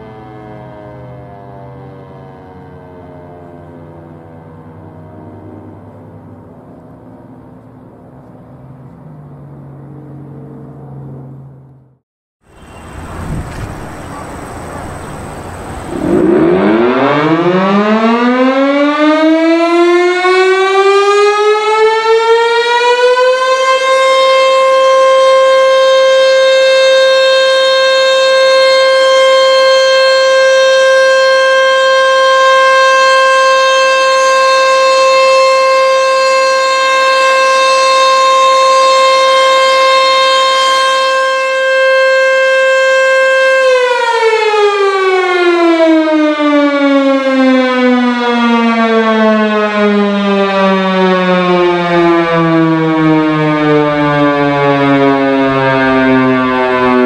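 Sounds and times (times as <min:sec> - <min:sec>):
warning siren steady tone: 0:00.0 - 0:07.4, 0:12.4 - 0:57.0.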